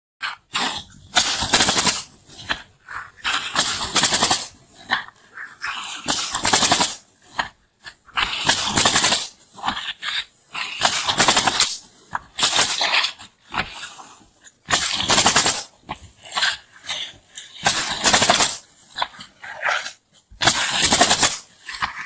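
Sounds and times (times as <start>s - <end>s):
nail gun rattling bursts: 1.2s - 2.1s, 3.5s - 4.6s, 6.0s - 7.0s, 8.4s - 9.4s, 10.8s - 11.8s, 12.4s - 13.0s, 14.7s - 15.7s, 17.6s - 18.7s, 20.4s - 21.6s.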